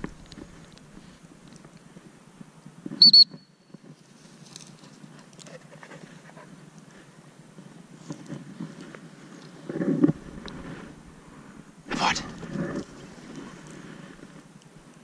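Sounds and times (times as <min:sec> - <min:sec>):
dog whistle toots: 0:03.0 - 0:03.4.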